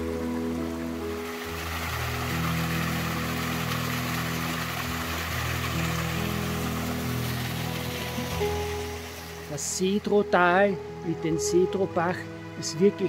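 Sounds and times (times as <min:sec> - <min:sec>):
stream rushing over rocks: 0:00.0 - 0:10.1
soft sustained music chords: 0:00.0 - 0:13.0.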